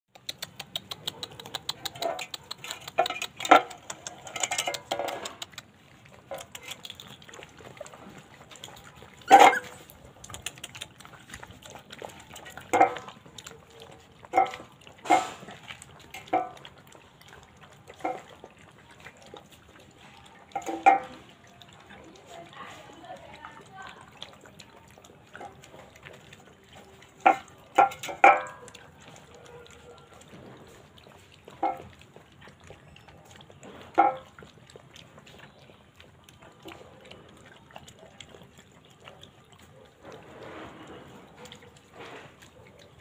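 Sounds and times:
puppies eating from a plate: 0:00.1 - 0:43.0
metal plate clinking: 0:09.3 - 0:09.7.

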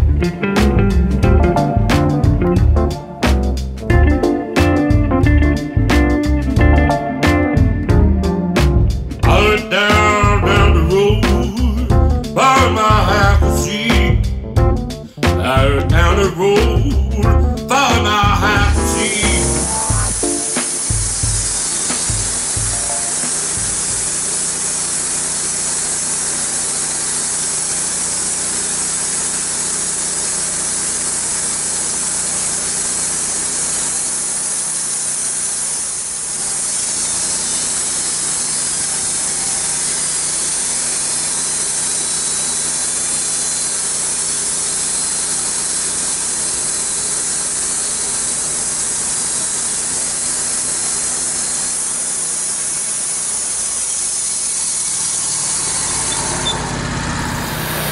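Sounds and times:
band saw blade cutting wood: 0:08.6 - 0:13.0, 0:17.6 - 0:57.9
engine running under load: 0:09.0 - 0:57.9.

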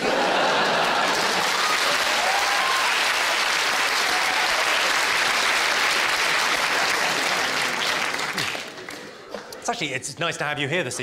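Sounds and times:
audience laughter: 0:00.0 - 0:01.6, 0:06.5 - 0:09.6
audience applauding: 0:00.0 - 0:09.3.

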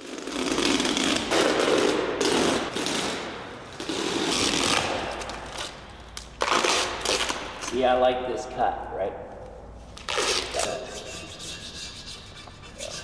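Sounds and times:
masking tape peeling off floor: 0:00.0 - 0:07.8, 0:09.9 - 0:13.0.

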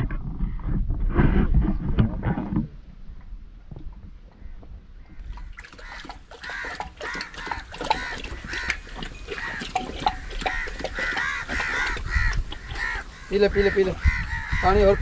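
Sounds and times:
birds calling: 0:04.2 - 0:15.0
dog lapping water: 0:05.0 - 0:13.5.

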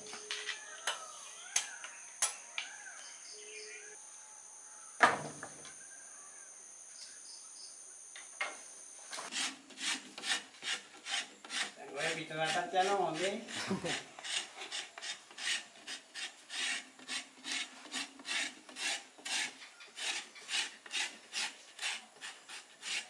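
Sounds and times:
birds calling: 0:00.0 - 0:04.0
high insect drone: 0:00.0 - 0:09.3
cinnamon stick scraping: 0:09.2 - 0:23.0.

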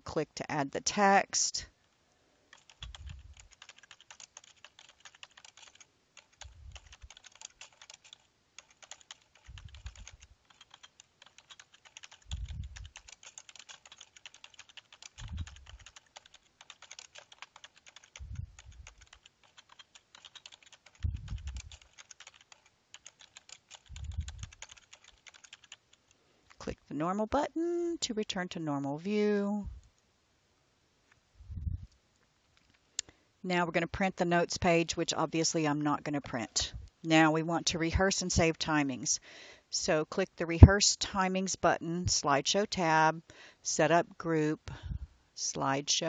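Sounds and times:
keyboard typing clicks: 0:02.5 - 0:26.0.

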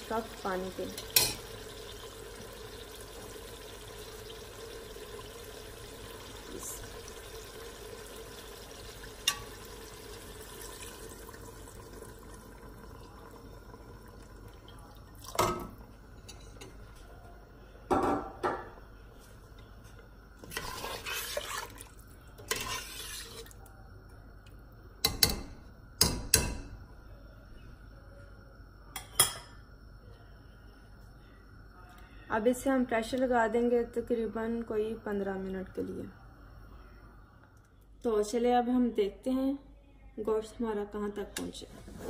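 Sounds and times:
water pouring into a pot: 0:00.0 - 0:16.0, 0:20.4 - 0:23.7
ladle scraping a steel pot: 0:20.4 - 0:21.7, 0:22.4 - 0:23.5.

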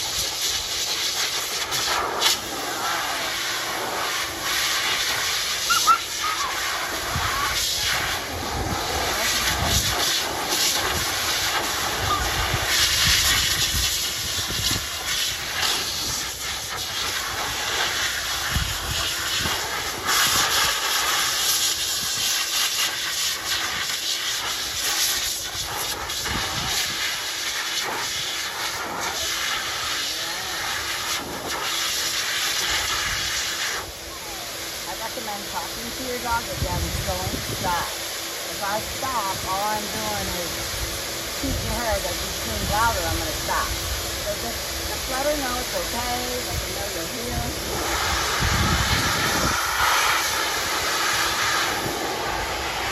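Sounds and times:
pet dryer blowing air: 0:00.0 - 0:52.9.

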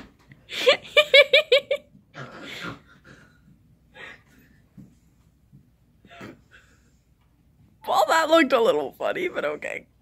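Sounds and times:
faint human breathing: 0:02.2 - 0:05.1, 0:06.0 - 0:07.3.

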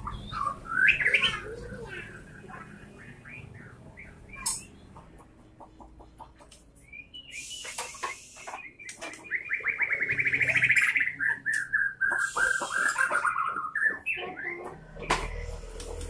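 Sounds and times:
songbird singing rapid notes: 0:06.7 - 0:15.5
harsh rasping bird notes: 0:07.2 - 0:16.0.

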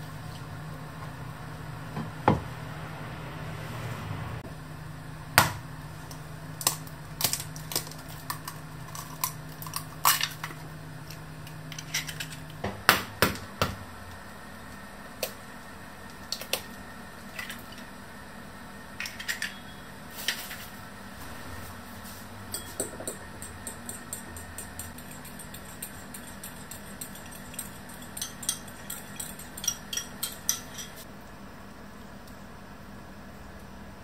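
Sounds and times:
utensil clinking against bowl: 0:22.5 - 0:31.0
eggs cracking on bowl rim: 0:23.1 - 0:30.8.

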